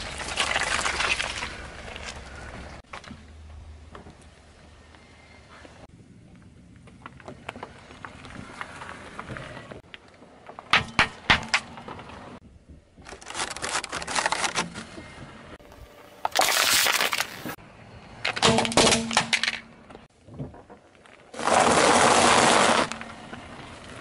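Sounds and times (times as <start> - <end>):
car tyre crushing small objects: 0.0 - 3.2, 16.2 - 17.6, 20.5 - 24.0.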